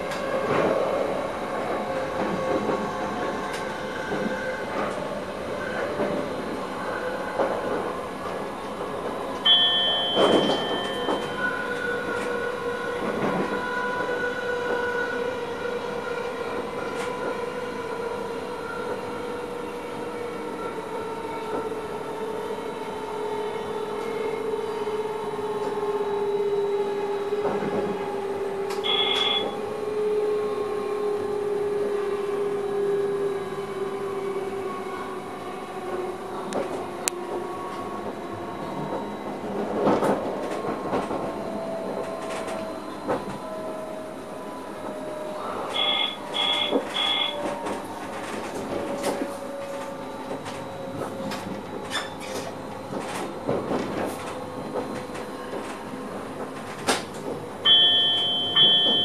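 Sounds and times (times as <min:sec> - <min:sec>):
rail running noise: 0:00.0 - 0:59.0
short high tones: 0:57.7 - 0:59.0.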